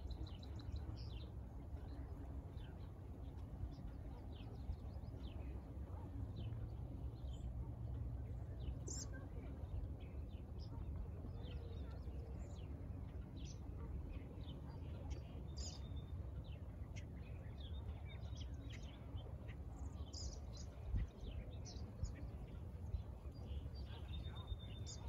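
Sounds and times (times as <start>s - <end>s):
small birds chirping: 14.4s - 25.0s.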